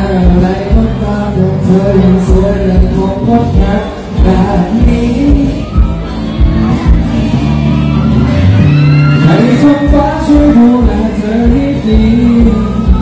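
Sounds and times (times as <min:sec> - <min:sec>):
man singing: 0:00.0 - 0:06.1, 0:09.2 - 0:13.0
amplified pop band: 0:00.0 - 0:13.0.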